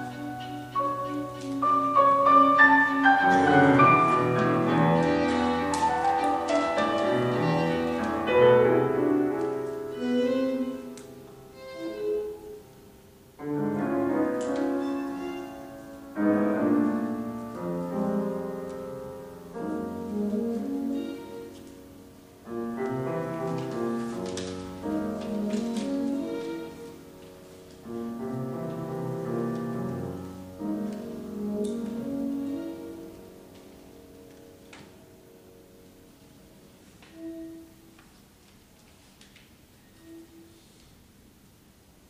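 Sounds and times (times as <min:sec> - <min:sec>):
violin saxophone and piano music: 0:00.0 - 0:38.0, 0:39.8 - 0:40.9.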